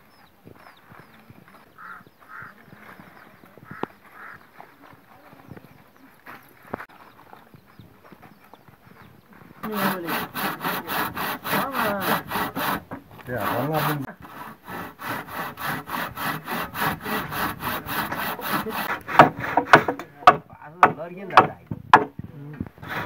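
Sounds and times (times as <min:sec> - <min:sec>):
hand saw cutting wood: 0:09.6 - 0:22.1, 0:22.8 - 0:23.0.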